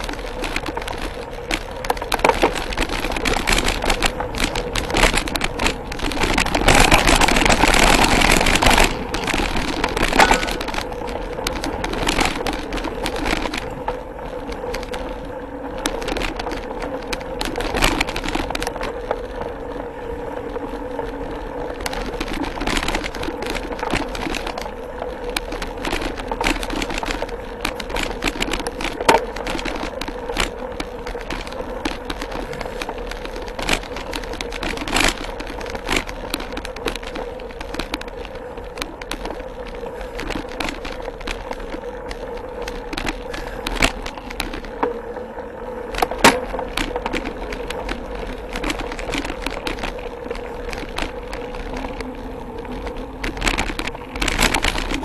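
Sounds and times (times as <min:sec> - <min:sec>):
mountain bike rattling: 0:00.0 - 0:55.0.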